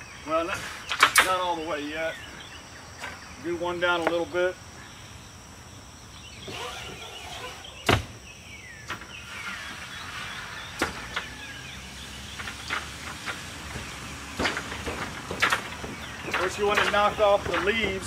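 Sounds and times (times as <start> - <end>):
metal arm scraping: 6.4 - 8.0.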